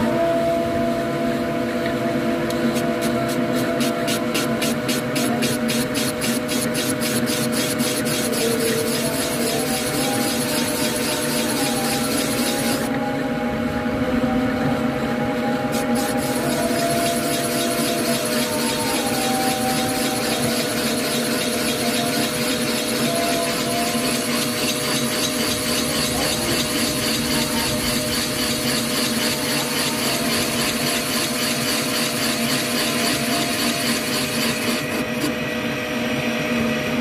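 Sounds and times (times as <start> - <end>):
boring bar motor humming: 0.0 - 37.0
cutter shaving metal hiss: 2.8 - 12.9, 15.7 - 35.1.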